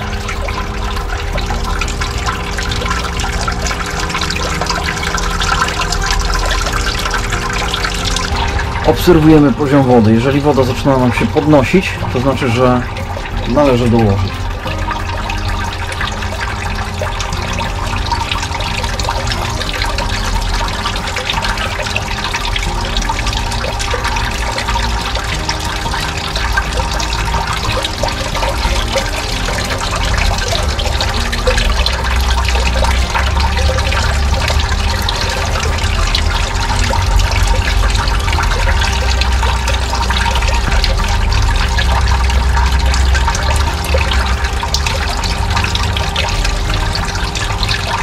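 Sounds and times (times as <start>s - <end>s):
steady pump hum: 0.0s - 48.0s
water swirling and churning: 0.0s - 48.0s.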